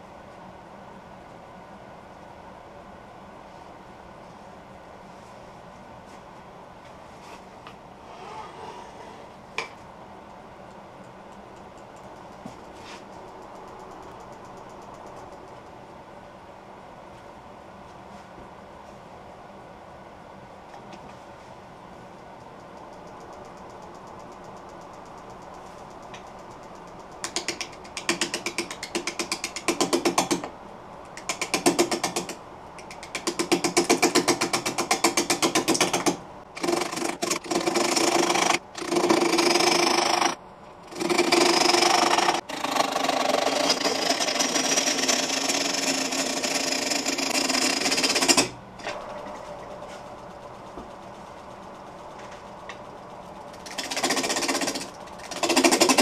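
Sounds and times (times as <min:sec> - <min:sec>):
lathe running: 0:36.6 - 0:48.4
gouge cutting wood on lathe: 0:36.6 - 0:48.5.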